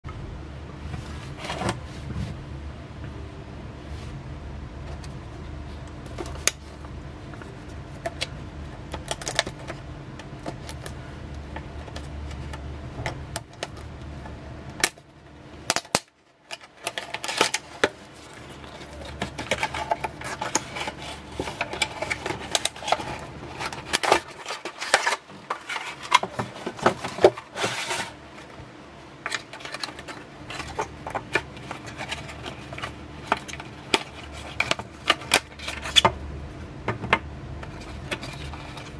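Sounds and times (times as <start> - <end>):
low steady hum: 0.0 - 38.9
plastic packaging being opened: 15.7 - 28.2.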